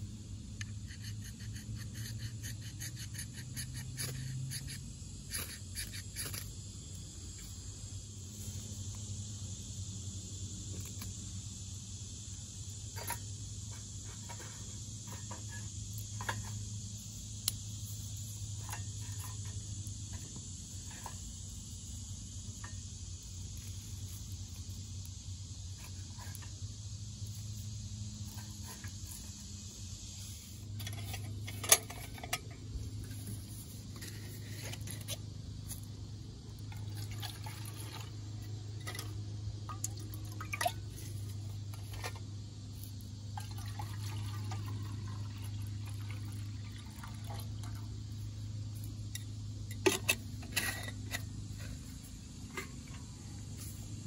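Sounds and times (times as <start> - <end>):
insect buzz: 0.0 - 54.0
water poured into a metal cup: 36.7 - 38.1, 39.7 - 40.8, 43.4 - 47.8.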